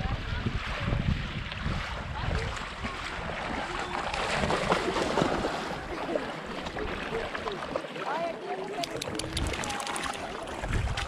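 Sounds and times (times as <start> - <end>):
wind noise: 0.0 - 5.3, 9.0 - 11.0
rushing water: 0.0 - 11.0
wading through splashing seawater: 0.0 - 11.0.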